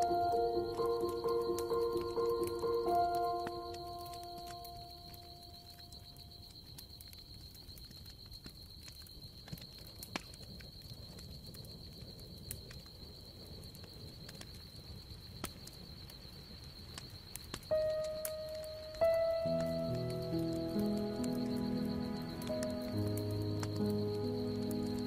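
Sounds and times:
sustained musical note: 0.0s - 5.4s, 17.9s - 25.0s
background music: 0.0s - 5.5s, 17.7s - 25.0s
faint hiss: 12.8s - 25.0s.

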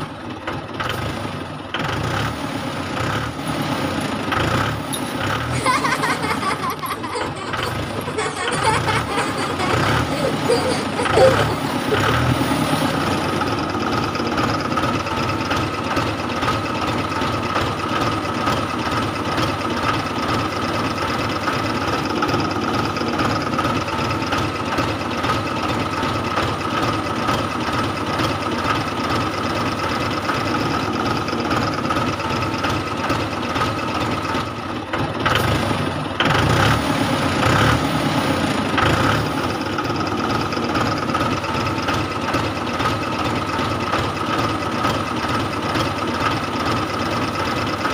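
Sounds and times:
toy electric motors whining: 5.6s - 12.0s.

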